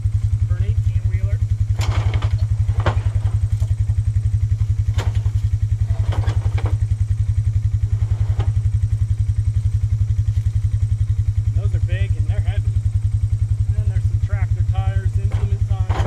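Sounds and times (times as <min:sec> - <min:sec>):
small engine idling: 0:00.0 - 0:16.0
tires dropped into cart: 0:01.7 - 0:06.9, 0:07.8 - 0:08.8, 0:15.2 - 0:16.0.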